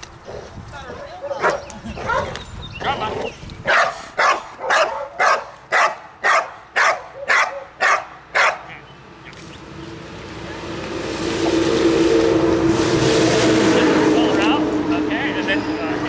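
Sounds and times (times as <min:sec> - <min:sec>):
dog barking: 0:00.3 - 0:02.4, 0:03.7 - 0:08.7
vehicle engine hum: 0:08.2 - 0:16.0.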